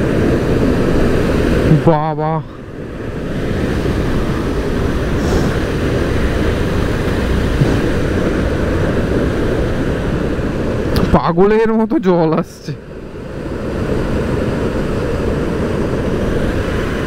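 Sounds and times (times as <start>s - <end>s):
water roaring through sluice gates: 0.0s - 12.8s.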